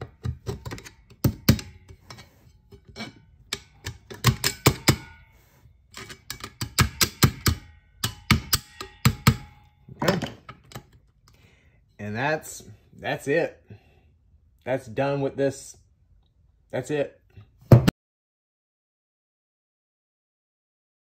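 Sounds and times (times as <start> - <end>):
metal scrape: 0.0 - 9.6
sharp metal clicks: 5.9 - 9.7.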